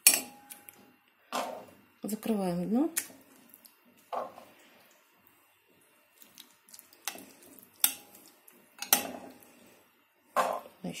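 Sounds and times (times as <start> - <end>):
wet food plop: 2.9 - 4.1, 6.1 - 9.0.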